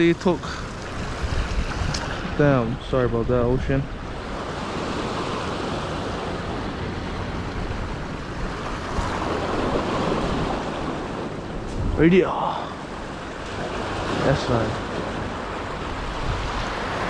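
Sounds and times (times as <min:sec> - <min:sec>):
waves splashing over rocks: 0:00.0 - 0:02.8, 0:03.4 - 0:17.0.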